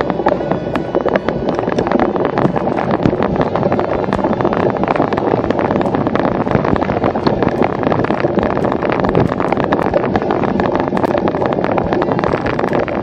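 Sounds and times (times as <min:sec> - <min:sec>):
bike rattling over bumpy dirt: 0:00.0 - 0:13.0
wind buffeting microphone: 0:00.0 - 0:13.0.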